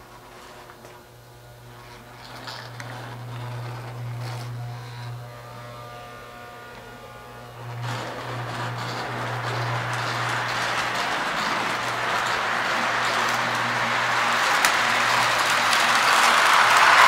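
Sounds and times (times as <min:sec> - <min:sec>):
model train electric hum: 0:00.0 - 0:17.0
train wheels on rails: 0:01.9 - 0:05.2, 0:06.7 - 0:17.0.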